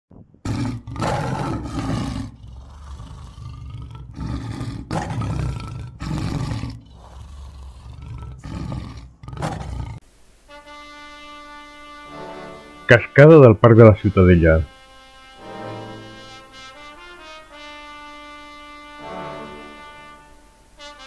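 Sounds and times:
lion roaring: 0.4 - 10.0.

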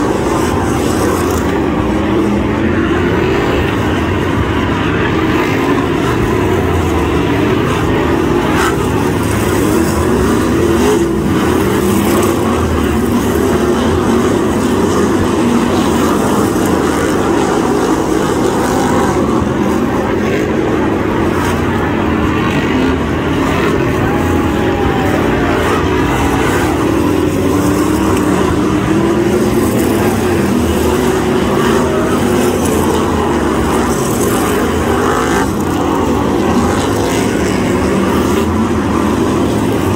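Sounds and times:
racing car engines: 0.0 - 39.9.

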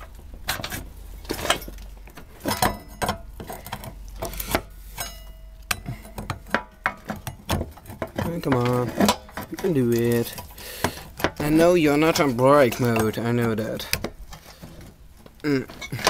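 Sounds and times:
metal clinks and knocks: 0.0 - 16.0.

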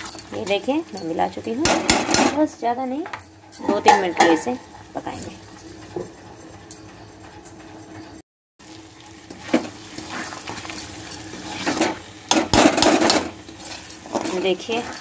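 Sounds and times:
faint sizzle: 8.6 - 15.0
spatula scraping a pan: 9.3 - 10.7, 11.3 - 15.0.

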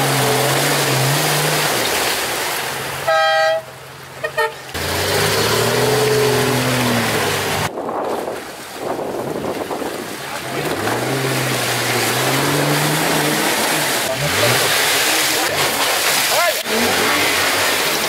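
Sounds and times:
engine revving hard: 4.8 - 7.7, 10.5 - 15.8, 16.6 - 18.0
spinning tyres throwing mud: 4.8 - 18.0.

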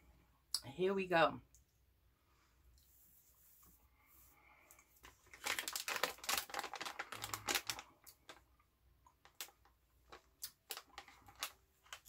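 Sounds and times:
plastic candy wrapper crinkling: 5.0 - 12.0.

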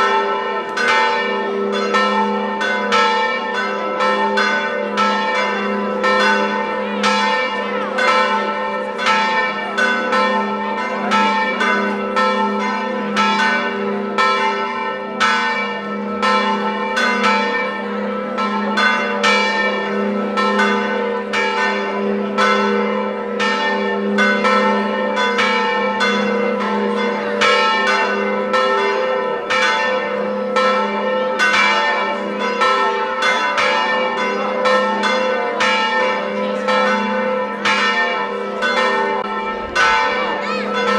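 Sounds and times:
church bells pealing: 0.0 - 40.9.

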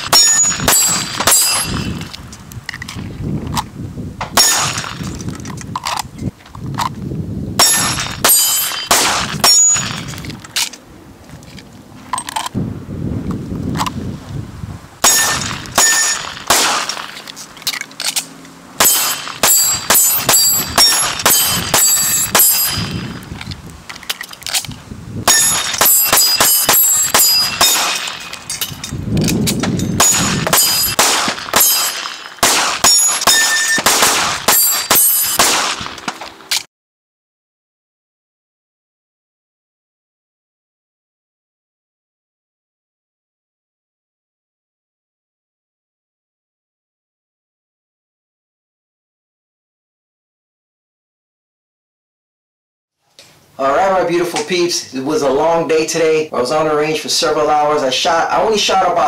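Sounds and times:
handgun shots: 7.6 - 10.2, 15.0 - 17.2, 18.8 - 23.1, 25.3 - 28.6, 29.2 - 36.6.

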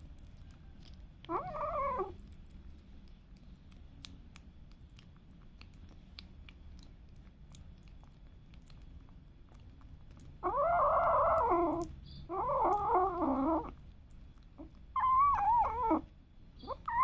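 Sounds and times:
kitten licking clicks: 2.2 - 10.4.

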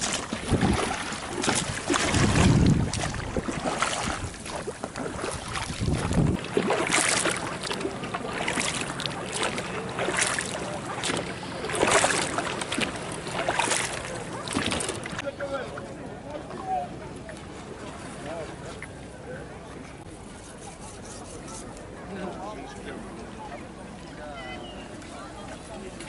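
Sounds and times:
wind rumble on microphone: 0.0 - 6.6
water running off oar blade: 0.0 - 15.2
oars splashing: 0.0 - 26.0.

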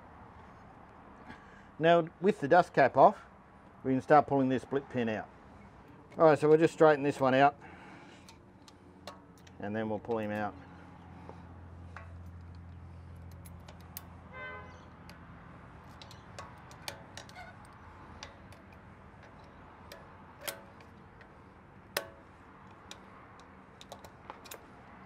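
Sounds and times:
pliers clicking on metal: 11.9 - 14.2, 14.9 - 21.3, 21.9 - 24.6.

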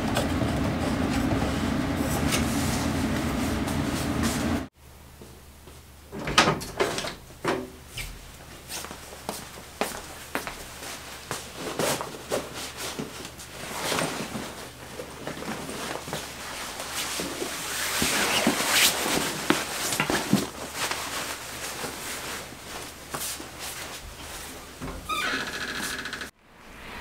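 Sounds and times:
nylon jacket and backpack rustling: 8.6 - 24.8.

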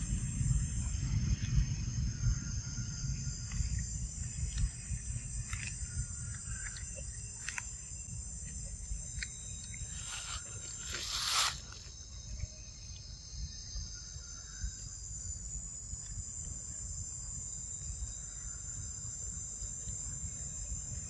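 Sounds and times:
low rumble: 0.0 - 8.4
insects shrilling: 1.6 - 15.4
loud rustle: 10.0 - 11.8.

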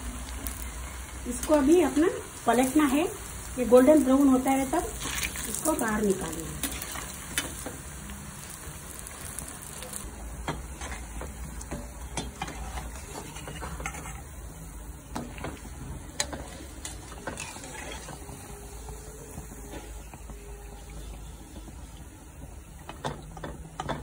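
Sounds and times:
food sizzling in hot oil: 0.0 - 24.0
skimmer scraping pan: 10.5 - 14.6, 15.2 - 20.1.

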